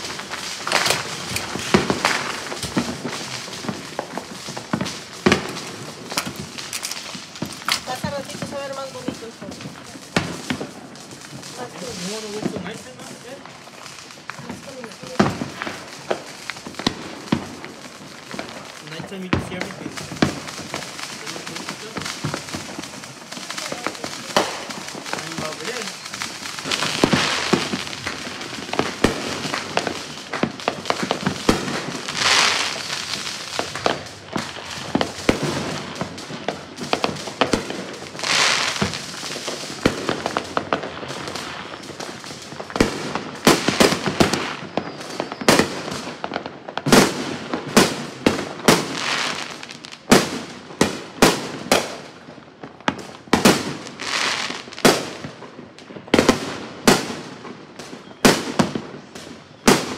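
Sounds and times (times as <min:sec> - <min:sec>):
fireworks bangs and pops: 0:00.0 - 0:59.9.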